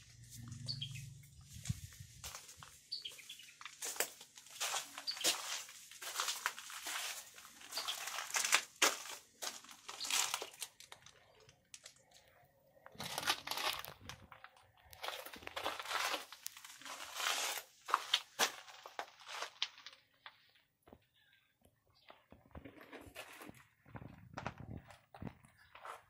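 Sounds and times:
footsteps crunching on sand and rock: 0:00.1 - 0:10.9, 0:14.9 - 0:20.0.

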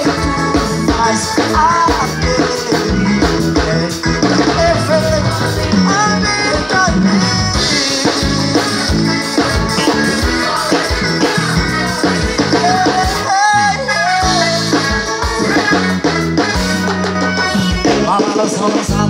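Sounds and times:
steady drum beat: 0:00.0 - 0:13.5, 0:14.2 - 0:19.0
live band playing: 0:00.0 - 0:19.0
sliding lead melody: 0:00.0 - 0:19.0.

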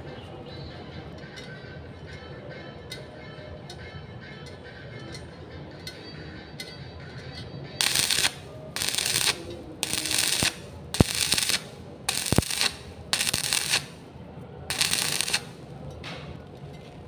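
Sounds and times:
arc welding sizzling bursts: 0:07.8 - 0:14.0, 0:14.7 - 0:15.6.

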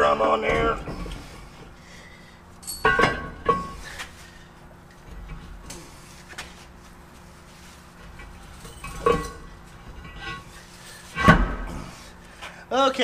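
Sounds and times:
heavy steel parts clanking: 0:00.2 - 0:01.8, 0:02.6 - 0:04.2, 0:08.0 - 0:12.2.

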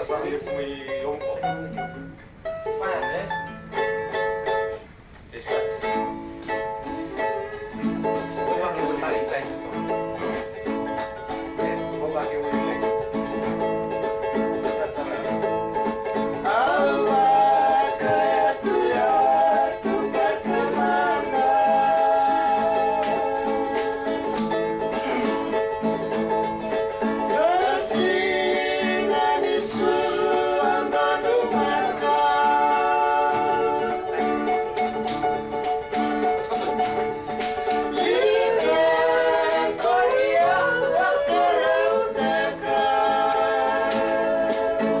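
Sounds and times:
acoustic guitars strumming: 0:00.0 - 0:45.0
person singing: 0:16.3 - 0:35.0, 0:37.6 - 0:45.0.

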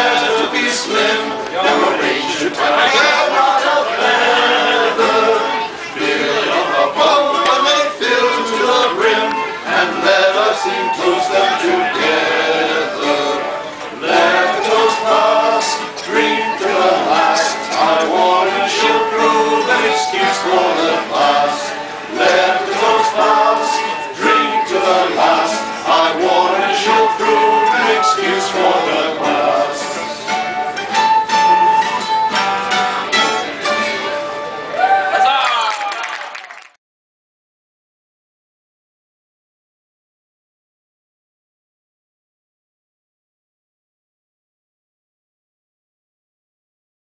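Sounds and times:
men singing in unison: 0:00.0 - 0:30.3
plucked string instrument: 0:00.0 - 0:34.8
flute: 0:00.0 - 0:35.8.

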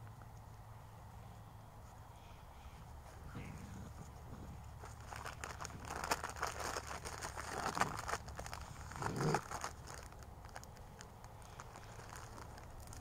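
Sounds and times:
crackling and crunching: 0:03.9 - 0:13.0.

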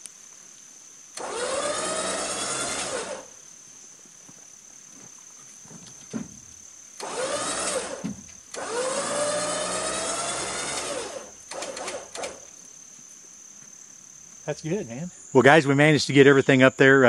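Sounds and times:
electric winch motor whine: 0:01.2 - 0:03.3, 0:07.0 - 0:12.5.

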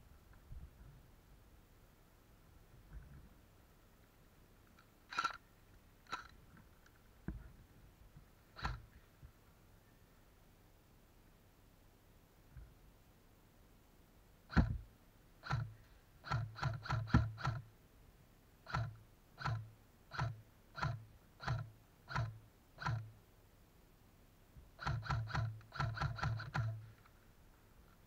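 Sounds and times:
airsoft rifle shots: 0:08.6 - 0:08.9, 0:14.5 - 0:14.8, 0:15.4 - 0:17.7, 0:18.6 - 0:23.1, 0:24.8 - 0:26.8.

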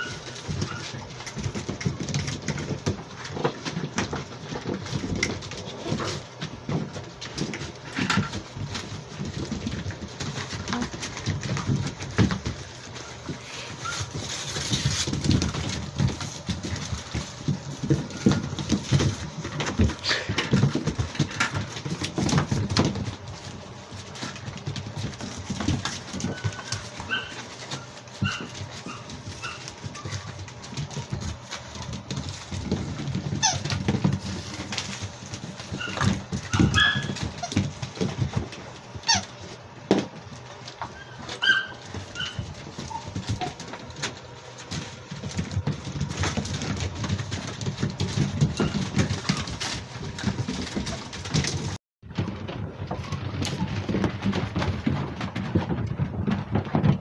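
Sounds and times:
puppy squeaks: 0:00.0 - 0:01.0, 0:26.2 - 0:30.2, 0:33.4 - 0:33.7, 0:35.8 - 0:37.5, 0:39.0 - 0:39.4, 0:40.9 - 0:43.2
puppies scuffling on tiled floor: 0:00.0 - 0:57.0.

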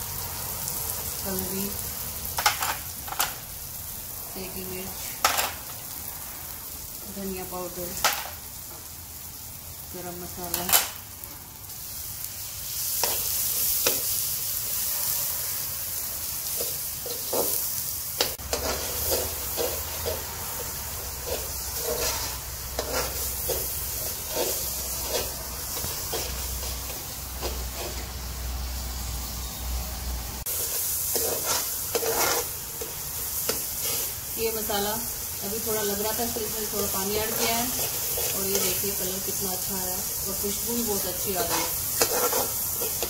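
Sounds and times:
food sizzling in oil: 0:00.0 - 0:43.0
metal spoon scraping pan: 0:18.2 - 0:28.2, 0:30.6 - 0:34.2, 0:36.2 - 0:39.1, 0:41.0 - 0:43.0.

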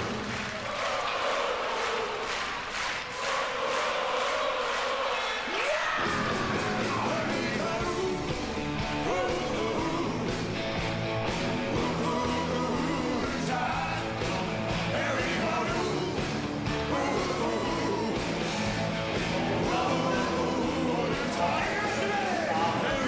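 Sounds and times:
rock and roll music: 0:05.5 - 0:23.0.

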